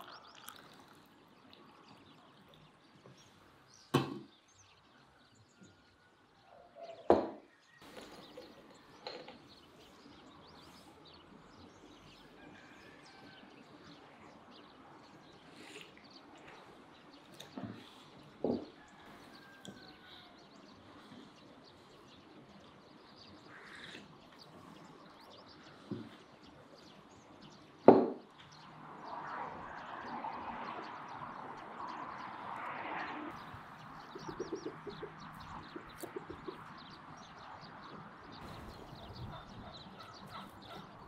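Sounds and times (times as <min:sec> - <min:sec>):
chickens clucking: 0:33.3 - 0:36.8, 0:38.4 - 0:41.0.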